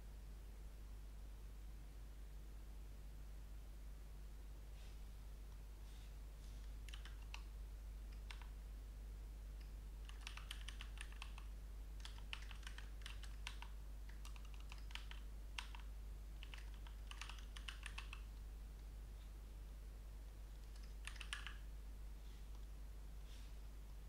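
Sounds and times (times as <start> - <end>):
computer keyboard typing: 6.8 - 7.5, 8.1 - 8.6, 9.6 - 18.3, 20.5 - 21.6.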